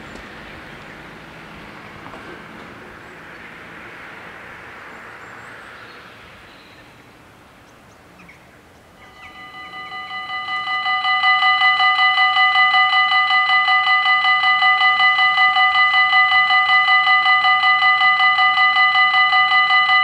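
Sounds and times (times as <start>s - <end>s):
faint rushing background noise: 0.0s - 20.0s
level crossing warning bells: 8.9s - 20.0s.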